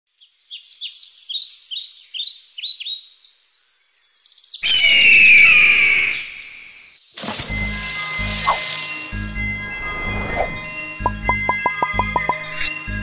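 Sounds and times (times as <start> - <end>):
birds chirping: 0.2 - 9.4.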